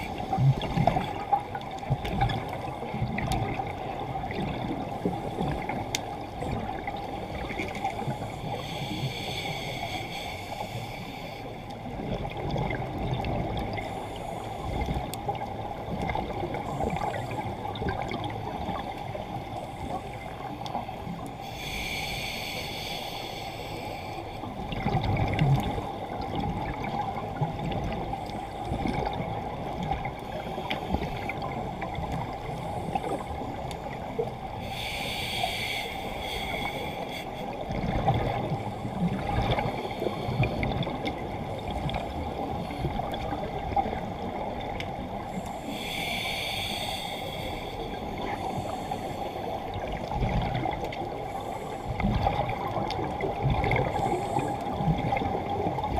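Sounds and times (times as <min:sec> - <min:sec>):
hissing inhale through regulator: 0:07.0 - 0:11.9, 0:13.7 - 0:15.0, 0:18.6 - 0:24.6, 0:32.4 - 0:43.4, 0:45.2 - 0:50.2, 0:51.1 - 0:52.8, 0:53.8 - 0:55.7
gurgling exhaled bubbles: 0:24.6 - 0:30.1, 0:37.6 - 0:45.0, 0:49.7 - 0:51.3, 0:51.9 - 0:55.9.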